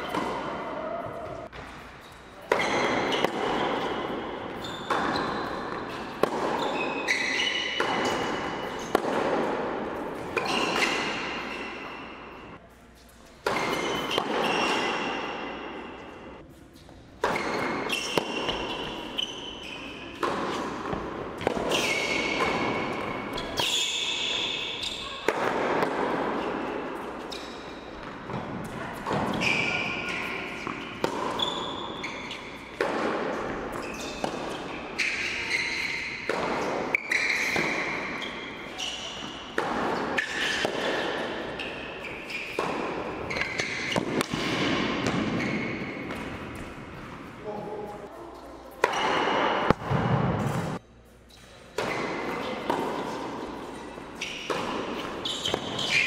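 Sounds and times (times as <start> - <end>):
tennis ball bouncing on hard court: 0.0 - 1.8, 2.5 - 11.6, 17.2 - 47.2, 48.8 - 50.8, 51.7 - 56.0
tennis ball hit by rackets: 2.5 - 11.5, 17.2 - 19.1, 20.1 - 23.7, 25.2 - 27.4, 28.0 - 31.7, 32.7 - 47.1, 48.8 - 50.8, 51.7 - 56.0.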